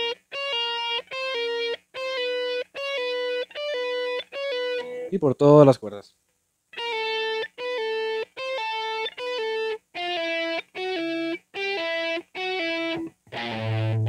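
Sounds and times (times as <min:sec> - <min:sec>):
distorted electric guitar phrase: 0:06.8 - 0:14.0.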